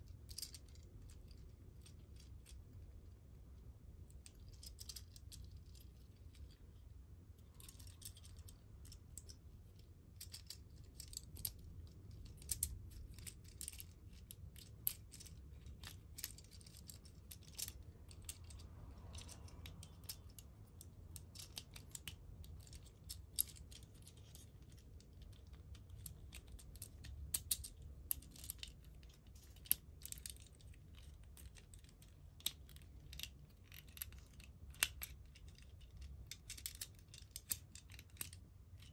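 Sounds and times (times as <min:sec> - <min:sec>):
plastic toy parts clicking: 0:07.5 - 0:38.9.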